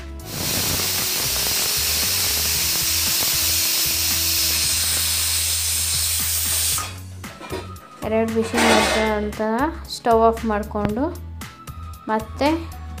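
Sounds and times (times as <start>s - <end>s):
pressure cooker steam hissing: 0.2s - 7.0s.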